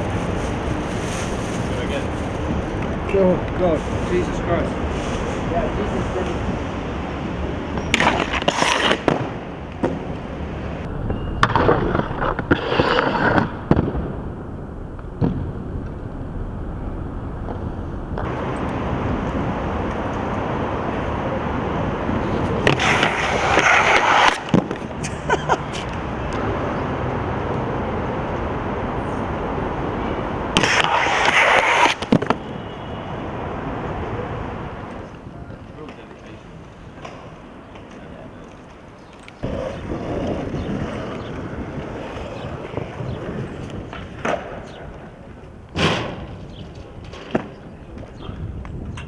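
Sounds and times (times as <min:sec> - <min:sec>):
skateboard wheels rolling on concrete: 0:00.0 - 0:49.0
skateboard clacks and landing slaps: 0:30.6 - 0:32.5, 0:39.4 - 0:45.1.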